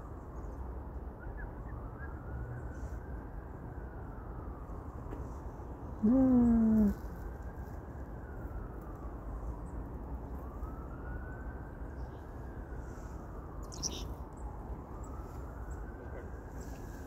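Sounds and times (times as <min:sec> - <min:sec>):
distant siren wailing: 0:00.0 - 0:17.0
bird chirp: 0:13.6 - 0:14.2.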